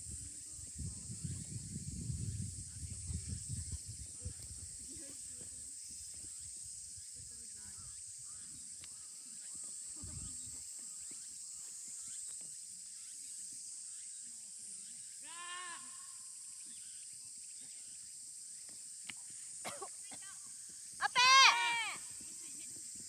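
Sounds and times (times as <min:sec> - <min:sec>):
high-pitched insect chorus: 0:00.0 - 0:23.0
distant drawn-out call: 0:21.0 - 0:22.0.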